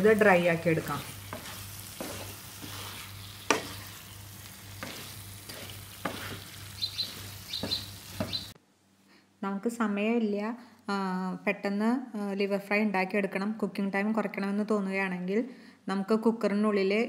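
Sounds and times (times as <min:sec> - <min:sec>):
liver sizzling in a frying pan: 0:00.0 - 0:08.6
wooden spatula scraping a pan: 0:00.6 - 0:08.6
spatula knocking against pan: 0:07.0 - 0:08.5.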